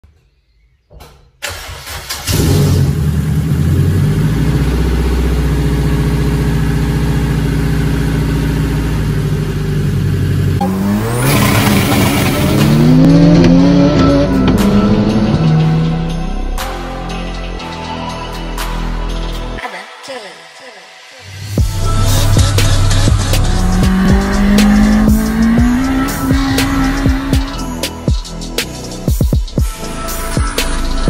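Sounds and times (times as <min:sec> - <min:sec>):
car engine starting and idling: 0:01.4 - 0:16.6, 0:21.6 - 0:29.0
car engine accelerating: 0:01.9 - 0:16.4, 0:21.6 - 0:28.7.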